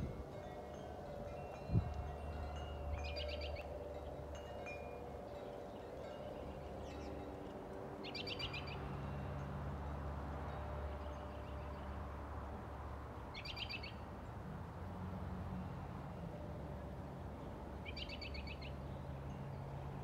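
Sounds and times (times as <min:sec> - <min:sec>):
wind chimes ringing: 0:00.0 - 0:12.0, 0:18.8 - 0:20.0
songbird trilled call: 0:13.4 - 0:14.0.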